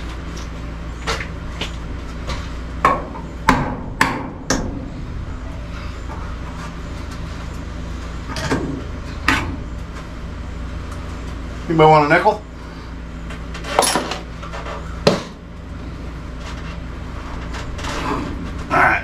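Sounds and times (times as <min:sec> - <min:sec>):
steady low hum: 0:00.0 - 0:19.0
sharp knocks on electrical box: 0:02.8 - 0:04.8.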